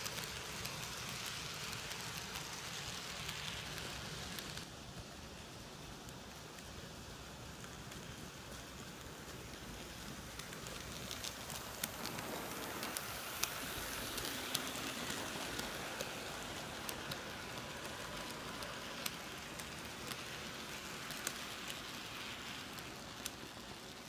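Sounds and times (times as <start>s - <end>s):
model train whirring: 0.0s - 24.0s
wheels clicking over rail joints: 0.0s - 24.0s.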